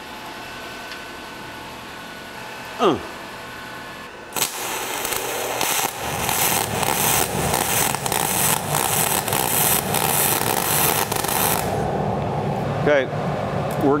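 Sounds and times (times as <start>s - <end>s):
welding arc crackling hiss: 4.3s - 11.9s
heavy popping: 4.4s - 11.8s.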